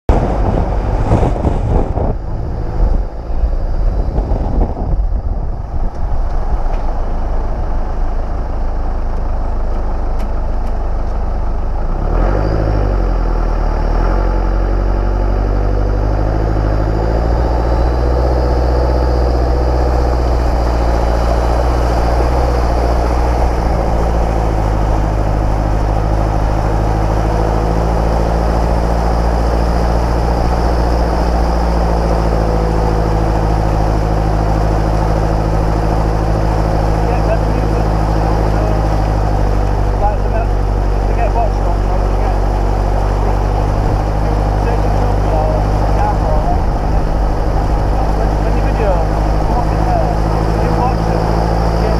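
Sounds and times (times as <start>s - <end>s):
vehicle engine rumbling: 0.0s - 51.9s
water rushing and sloshing: 0.1s - 3.7s, 17.9s - 51.9s.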